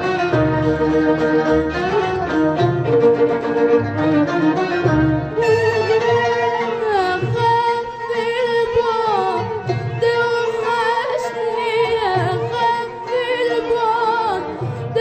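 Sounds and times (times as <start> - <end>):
bowed strings melody: 0.0 - 15.0
woman singing: 5.4 - 15.0.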